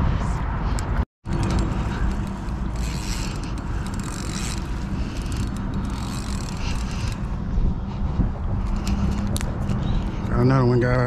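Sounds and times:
wind rumble on microphone: 0.0s - 4.6s, 5.2s - 11.0s
fishing reel ratcheting: 1.3s - 7.4s.

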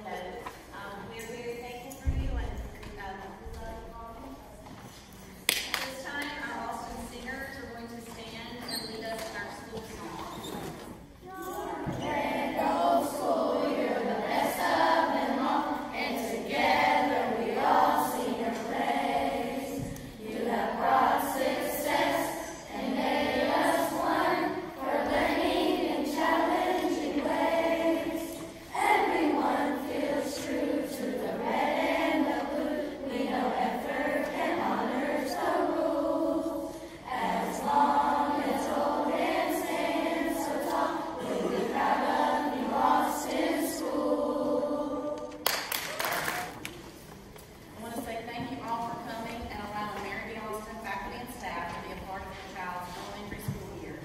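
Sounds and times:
group of voices singing: 11.6s - 45.4s.

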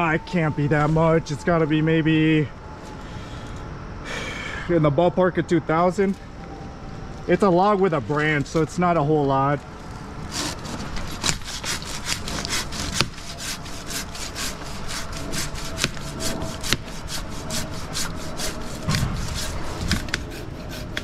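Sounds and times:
hand saw cutting wood: 10.2s - 21.0s.

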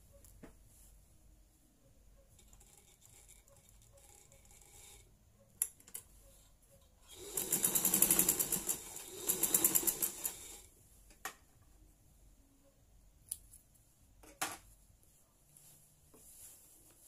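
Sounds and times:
sewing machine stitching: 7.1s - 10.7s.

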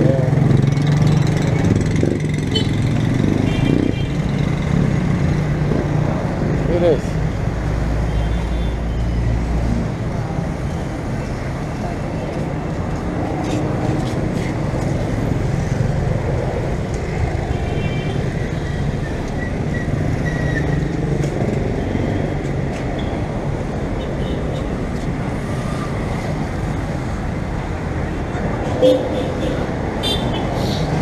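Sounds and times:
cars and motorcycles passing: 0.0s - 31.0s.

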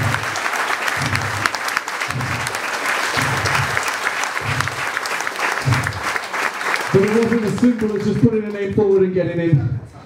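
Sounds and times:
low repeating beat: 0.0s - 6.3s, 6.9s - 9.9s
crowd applauding: 0.0s - 9.5s.

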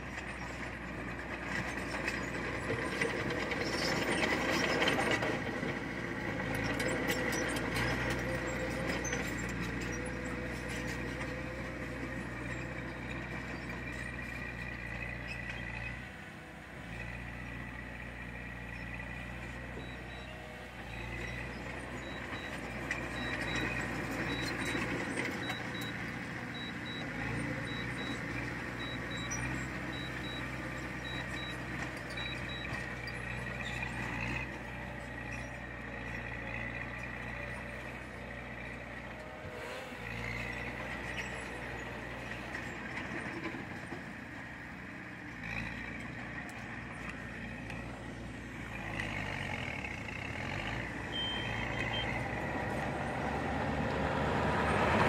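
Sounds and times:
bulldozer diesel engine running: 0.0s - 55.0s
machine rattling and clanking: 1.3s - 11.4s
faint high reversing beeps: 19.4s - 33.8s, 51.1s - 52.3s.

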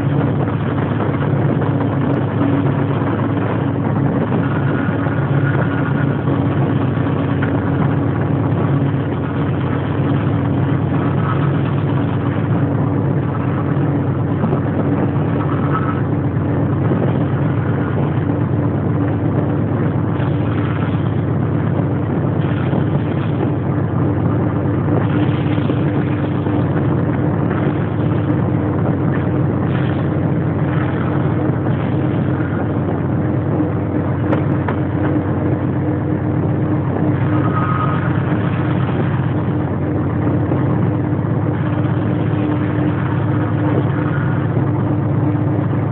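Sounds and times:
diesel locomotive engine hum: 0.0s - 45.9s
moving train rumble: 0.0s - 45.9s.

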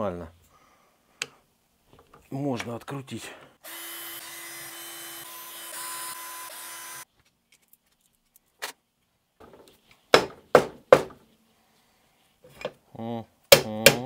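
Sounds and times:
sharp knocks: 9.5s - 11.2s.

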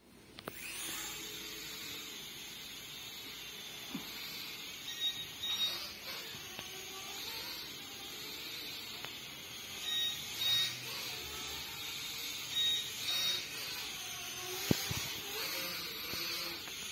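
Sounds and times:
toy quadcopter buzzing whine: 0.4s - 16.9s.

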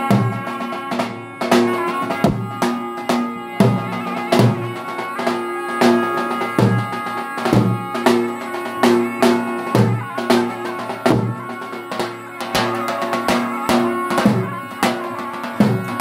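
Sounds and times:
shawm melody: 0.0s - 16.0s
bass drum beats: 1.5s - 2.8s.

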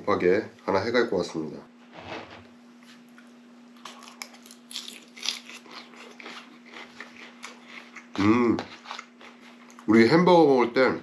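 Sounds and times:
person crunching salad: 3.8s - 9.9s.

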